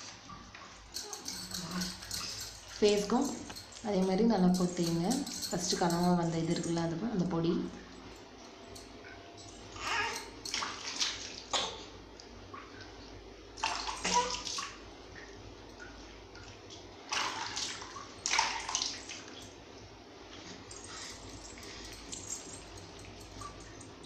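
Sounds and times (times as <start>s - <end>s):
water splashing over baby: 9.7s - 12.0s, 13.6s - 14.8s, 16.4s - 19.4s.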